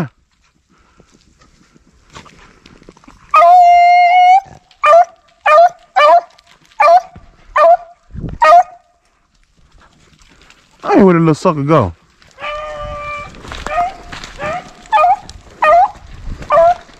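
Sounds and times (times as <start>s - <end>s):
hound baying and yelping: 3.3s - 8.9s, 12.4s - 16.9s.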